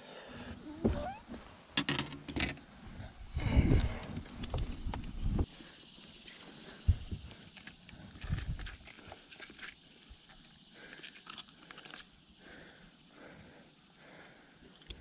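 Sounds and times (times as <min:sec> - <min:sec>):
handling clicks and knocks: 0:01.8 - 0:02.6.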